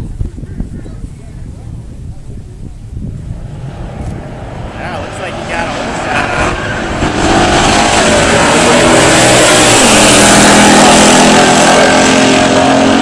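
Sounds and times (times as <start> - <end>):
cars accelerating at full throttle: 3.4 - 13.0.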